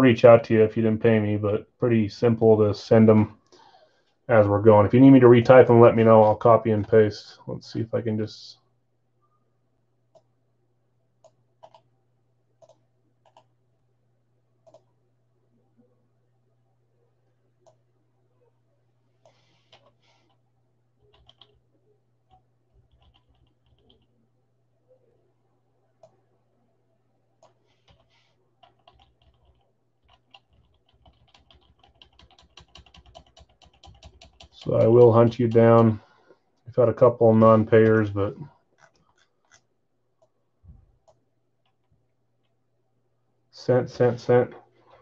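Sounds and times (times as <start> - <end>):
steady low hum: 0.0 - 45.0
faint keyboard typing: 11.2 - 13.6, 14.6 - 15.0, 17.6 - 17.9, 19.1 - 24.3, 25.9 - 26.4, 27.3 - 36.7, 37.7 - 42.6
mouse and keyboard clicking: 12.6 - 13.5, 14.6 - 14.9.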